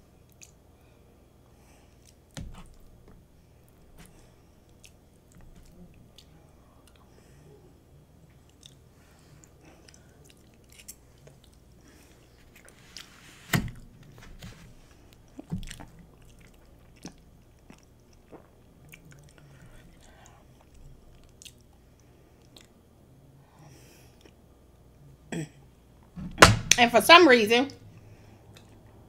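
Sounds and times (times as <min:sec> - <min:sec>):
person chewing: 0:01.8 - 0:03.0, 0:03.9 - 0:07.2, 0:08.3 - 0:13.8, 0:14.9 - 0:22.8, 0:28.4 - 0:29.0.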